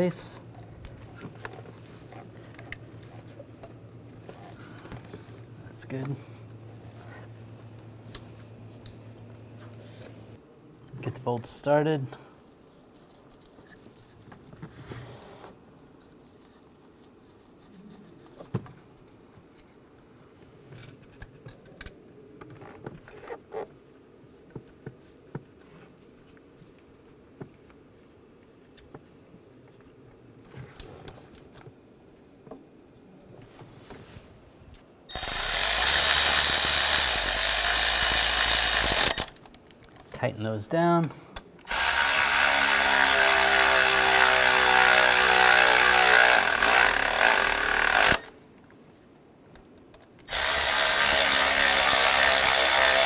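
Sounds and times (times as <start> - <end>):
handheld power tool running: 35.1 - 39.4, 41.7 - 48.3, 50.3 - 53.0.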